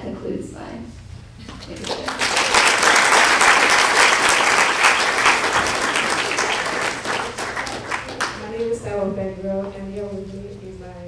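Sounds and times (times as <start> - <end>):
audience applauding: 1.7 - 8.5.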